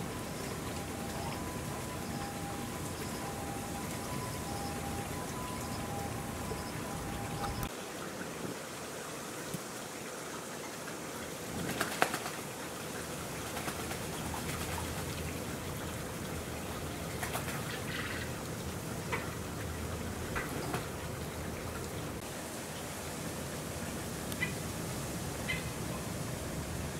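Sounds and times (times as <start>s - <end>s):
bird calls: 0.0s - 7.7s
shallow running water trickling: 0.0s - 26.9s.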